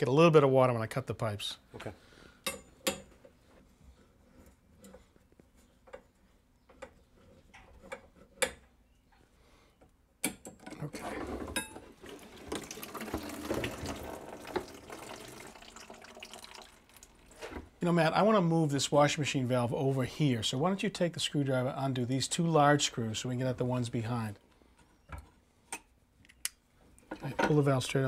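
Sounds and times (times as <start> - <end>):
water trickling into bucket: 11.9 - 17.6.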